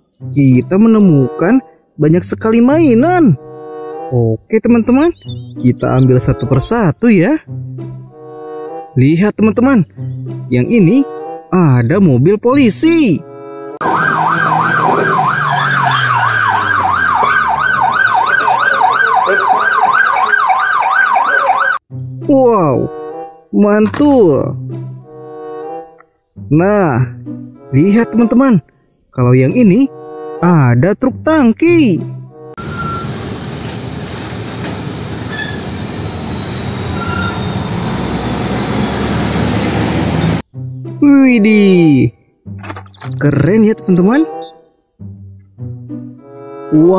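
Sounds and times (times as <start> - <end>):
trucks driving past: 13.8 - 20.0, 32.2 - 40.5
police siren yelping: 13.8 - 21.8, 43.8 - 44.7.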